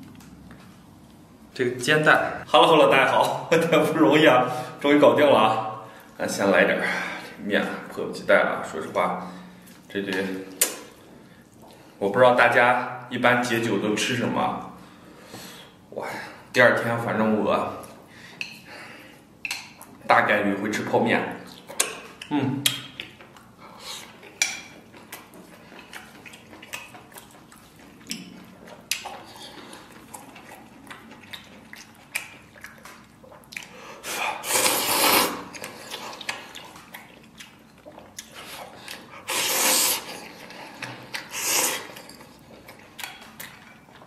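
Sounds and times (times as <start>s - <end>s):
soft chewing: 0.0s - 1.5s, 9.5s - 12.0s, 21.4s - 34.8s, 35.4s - 44.0s
person slurping noodles: 34.0s - 36.2s, 38.5s - 42.0s.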